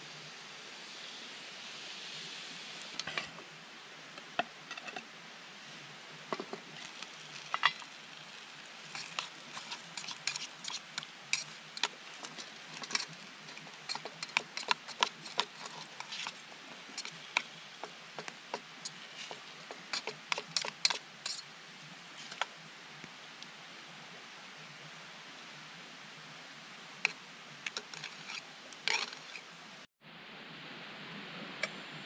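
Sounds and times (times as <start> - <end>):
steady hiss: 0.0 - 32.0
spatula scraping metal pot: 6.4 - 21.4, 27.7 - 29.4.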